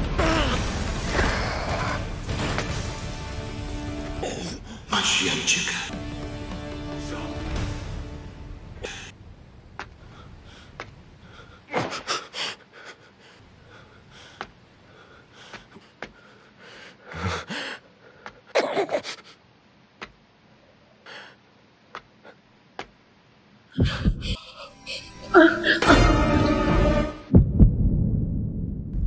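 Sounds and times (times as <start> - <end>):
man gasping and breathing heavily: 10.0 - 19.4.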